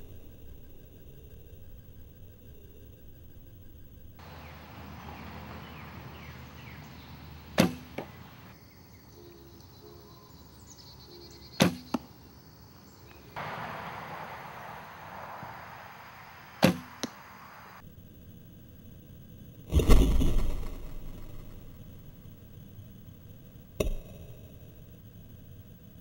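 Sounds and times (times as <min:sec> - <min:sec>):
arrow hitting foam target: 0:07.6 - 0:08.1, 0:11.6 - 0:12.0, 0:16.6 - 0:17.2
bowstring thump: 0:07.6 - 0:08.2, 0:16.6 - 0:17.2.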